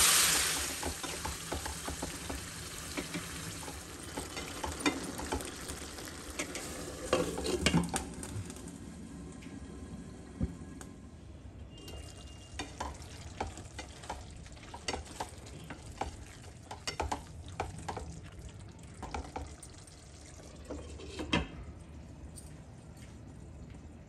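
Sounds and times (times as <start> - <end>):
curry sizzling: 0.0 - 10.2, 11.7 - 21.2
spatula scraping pan: 6.4 - 7.8.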